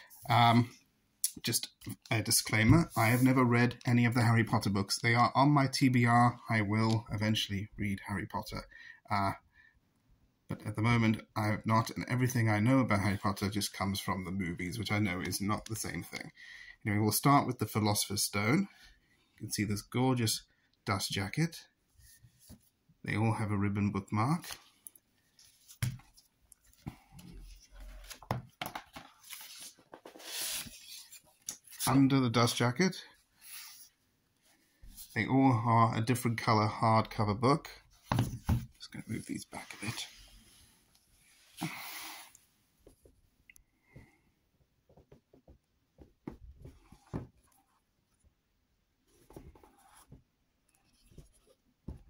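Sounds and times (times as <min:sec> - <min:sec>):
books knocking on table: 0:28.2 - 0:29.1, 0:38.1 - 0:38.7
book knocking against table: 0:38.1 - 0:38.7.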